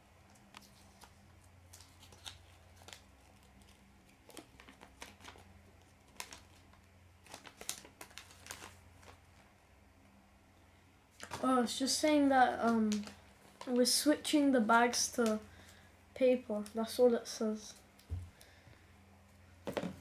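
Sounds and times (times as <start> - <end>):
paper rustling and crinkling: 0.3 - 9.5, 12.4 - 14.0.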